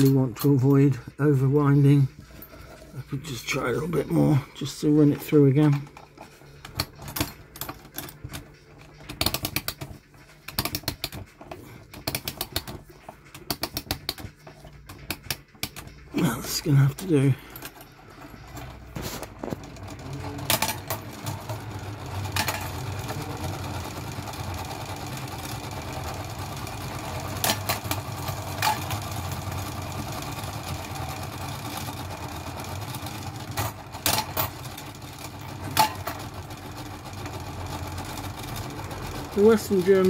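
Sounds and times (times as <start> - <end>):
clockwork toy motor whirring: 10.5 - 40.0.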